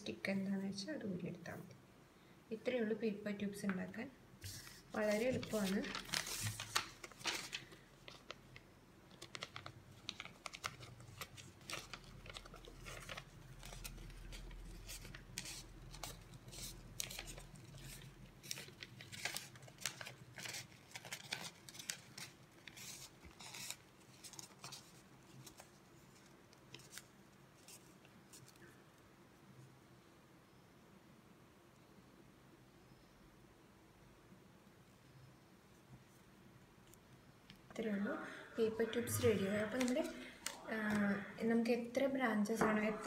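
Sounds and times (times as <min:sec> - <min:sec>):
newspaper crackling and rustling: 0:04.4 - 0:28.7, 0:39.7 - 0:41.0.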